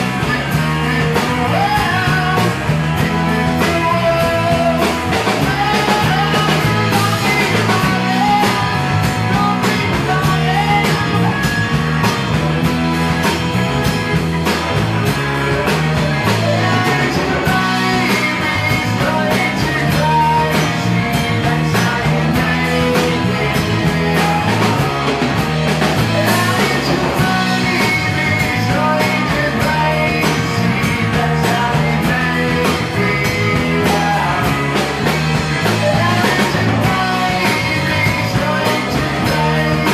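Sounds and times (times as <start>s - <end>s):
person singing: 0.0s - 13.5s, 14.5s - 39.9s
drum kit: 0.0s - 39.9s
electric guitars: 0.0s - 39.9s.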